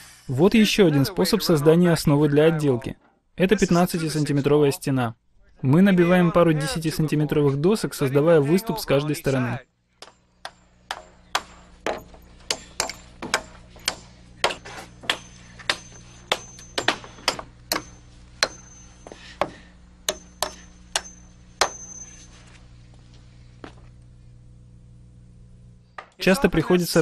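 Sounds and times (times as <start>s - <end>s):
hammer driving nails into wood: 10.0s - 18.7s.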